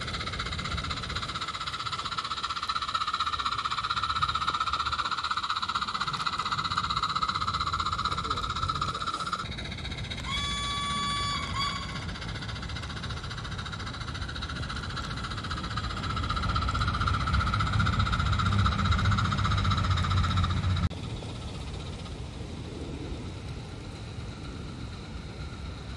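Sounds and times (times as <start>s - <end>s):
model train running rumble: 0.0s - 25.9s
model steam locomotive whistle: 10.2s - 12.3s.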